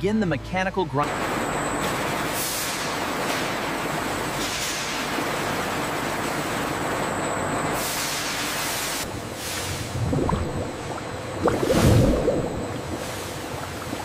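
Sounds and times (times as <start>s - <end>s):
water gushing through pipes: 9.0s - 14.0s
low machine rumble: 9.1s - 14.0s.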